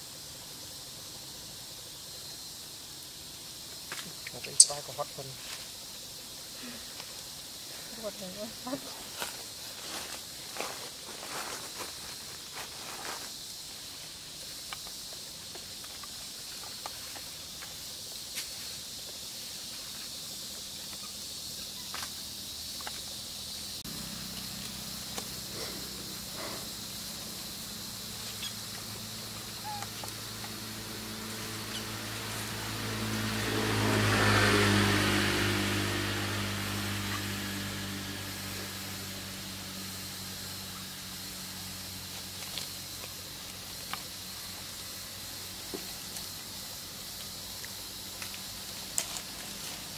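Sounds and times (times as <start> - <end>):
steady high hiss: 0.0 - 49.9
vehicle engine passing: 30.1 - 41.5.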